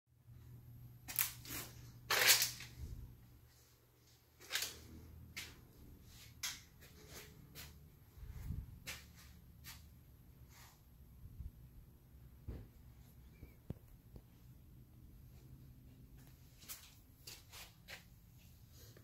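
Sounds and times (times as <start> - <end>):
faint low hum: 0.2 - 19.0
footsteps: 5.3 - 10.7.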